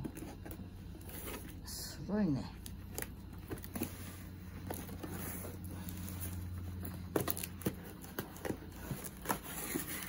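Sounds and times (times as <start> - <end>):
steady low hum: 0.0 - 10.0
cardboard box rustling: 2.8 - 10.0.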